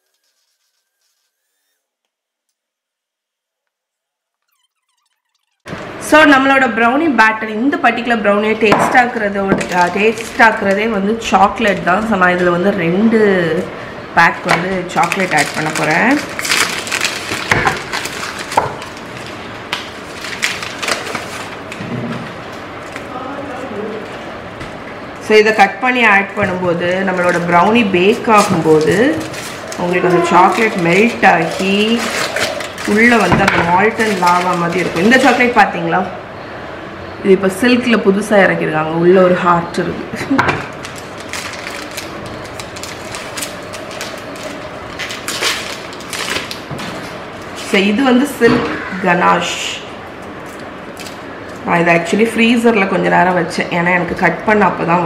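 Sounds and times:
foil wrapper crinkling: 0:00.0 - 0:01.5, 0:14.4 - 0:21.8, 0:26.9 - 0:35.8, 0:40.6 - 0:48.0, 0:50.2 - 0:51.7
steady background hum: 0:00.0 - 0:55.0.

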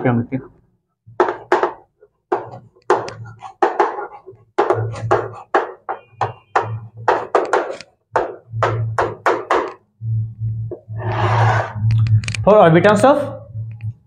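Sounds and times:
chalk tapping and scratching: 0:01.2 - 0:08.4.

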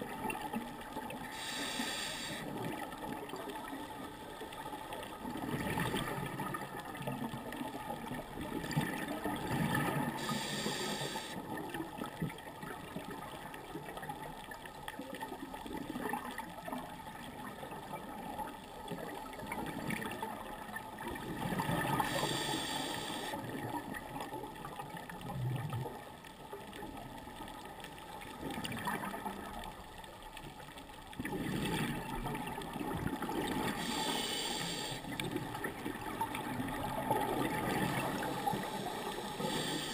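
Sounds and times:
regulator hiss: 0:01.3 - 0:02.6, 0:10.2 - 0:11.4, 0:22.0 - 0:23.4, 0:33.8 - 0:35.1, 0:38.2 - 0:39.9
muffled bubbling of exhaled air: 0:31.2 - 0:39.9.

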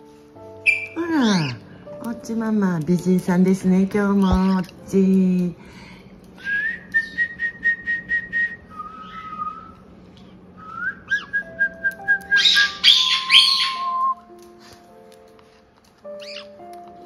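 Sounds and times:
whistled tune: 0:00.6 - 0:01.6, 0:06.4 - 0:09.8, 0:10.6 - 0:14.3
sharp chirping notes: 0:11.0 - 0:14.2.

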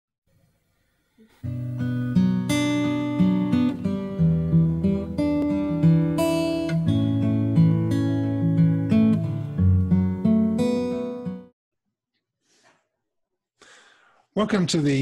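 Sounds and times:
acoustic guitar melody: 0:01.2 - 0:11.5.

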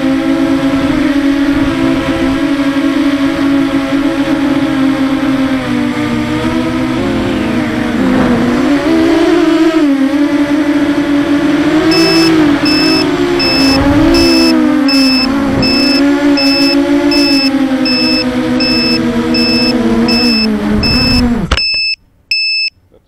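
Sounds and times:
drone motors whining: 0:11.8 - 0:22.7
high beeper: 0:11.9 - 0:22.7.

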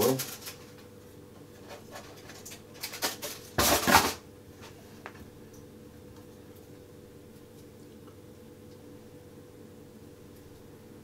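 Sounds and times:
foil crinkling: 0:00.0 - 0:00.8.

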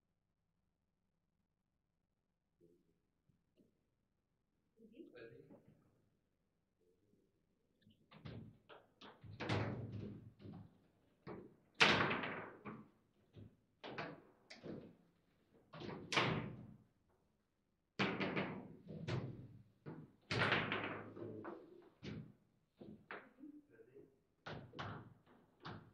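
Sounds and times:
table football knocks and clacks: 0:08.1 - 0:15.0, 0:15.6 - 0:16.8, 0:18.0 - 0:23.4, 0:24.4 - 0:25.9.

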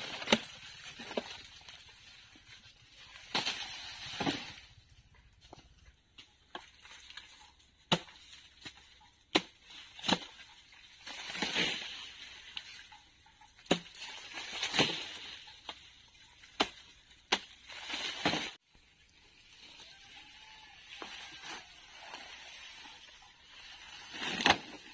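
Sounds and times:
blade chopping sugar cane: 0:07.9 - 0:10.4, 0:13.6 - 0:15.2, 0:16.6 - 0:18.6.

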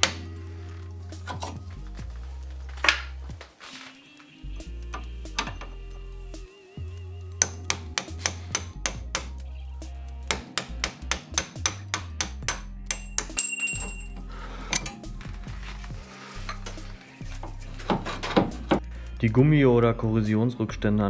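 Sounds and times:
hammer striking steel: 0:07.4 - 0:09.4, 0:10.3 - 0:14.0.

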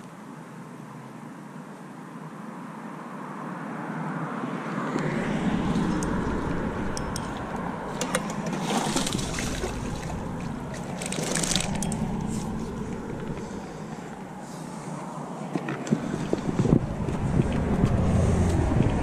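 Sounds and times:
road traffic rumble: 0:00.0 - 0:19.0
fish splashing at surface: 0:06.0 - 0:13.8.

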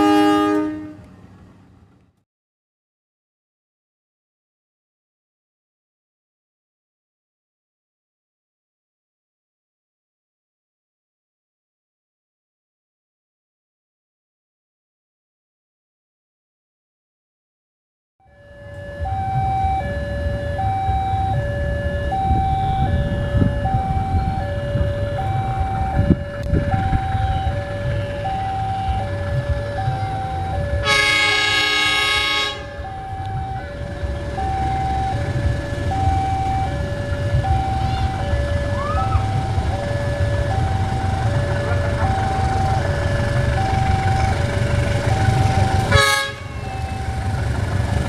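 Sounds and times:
locomotive horn: 0:00.0 - 0:01.2, 0:18.3 - 0:48.0
level-crossing alarm two tones: 0:18.3 - 0:47.8
low rumble: 0:18.8 - 0:30.9.

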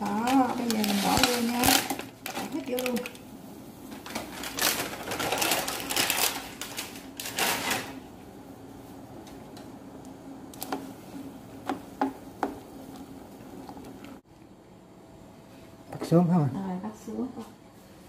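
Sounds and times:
boiling water crackling and bubbling: 0:00.0 - 0:07.4, 0:08.0 - 0:14.4.

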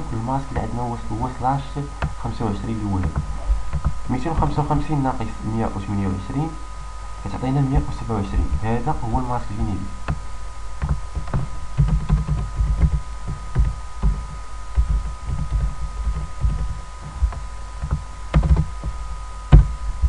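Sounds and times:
faint electrical whine: 0:00.0 - 0:20.0
keyboard typing: 0:03.0 - 0:04.0, 0:10.8 - 0:19.0.

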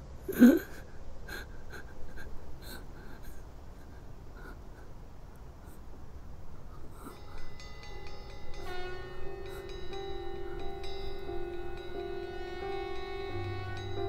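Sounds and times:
man sobbing: 0:00.3 - 0:05.9
crying breaths and sniffles: 0:00.3 - 0:12.2.

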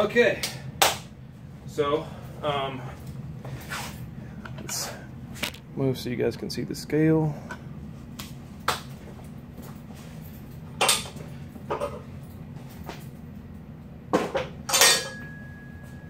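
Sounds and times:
metallic ring: 0:14.7 - 0:16.0.

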